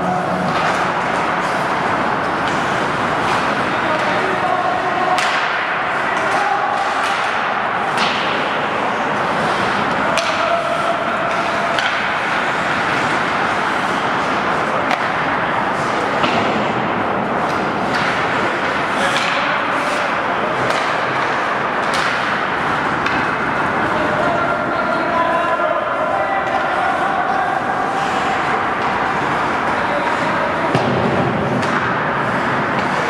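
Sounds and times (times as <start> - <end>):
hockey sticks and puck clacking: 0.0 - 33.0
skates scraping on ice: 0.0 - 33.0.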